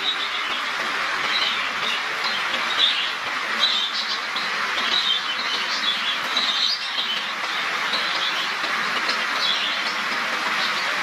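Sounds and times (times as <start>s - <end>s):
sparrows chirping: 1.3s - 8.6s.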